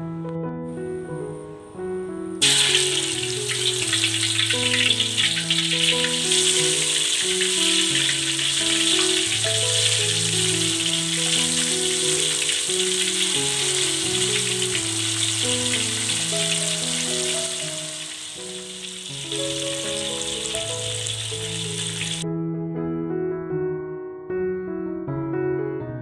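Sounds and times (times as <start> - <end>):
keyboard music with held notes: 0.0 - 26.0
chicken sizzling in hot oil: 2.4 - 22.2.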